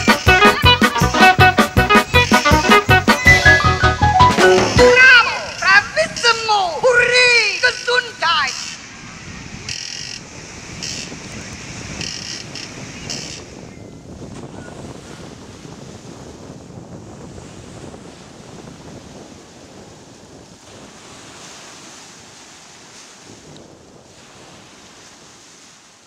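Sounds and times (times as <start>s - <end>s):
waves breaking on a beach: 4.4s - 26.0s
wind rumbling on microphone: 8.7s - 26.0s.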